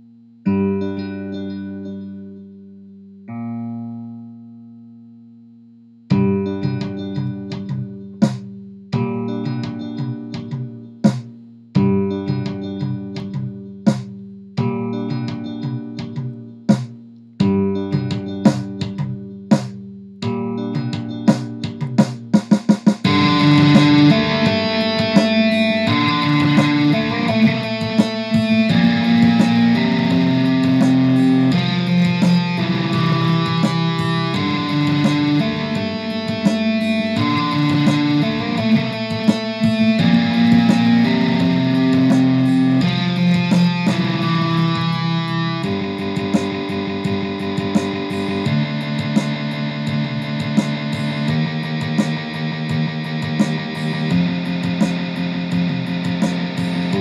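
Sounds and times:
electric guitar with delay: 0:00.0 - 0:02.4, 0:06.1 - 0:07.9, 0:23.0 - 0:57.0.

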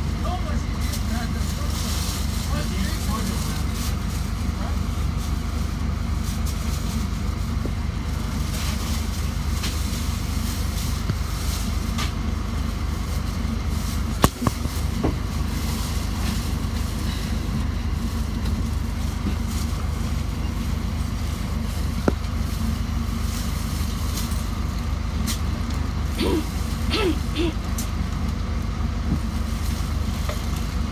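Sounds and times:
bus engine idling: 0:00.0 - 0:30.9.

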